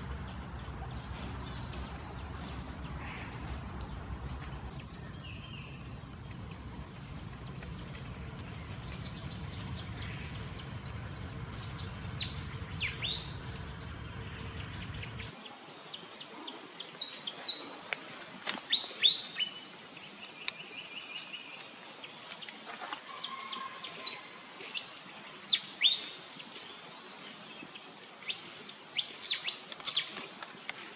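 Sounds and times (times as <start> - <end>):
low background rumble: 0.0 - 15.4.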